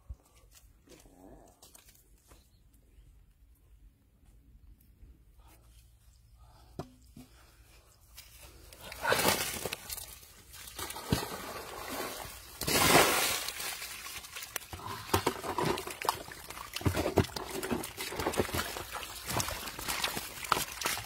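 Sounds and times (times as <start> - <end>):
fish flopping in mud: 9.0 - 21.0
heavy wet pour of mud: 10.8 - 21.0.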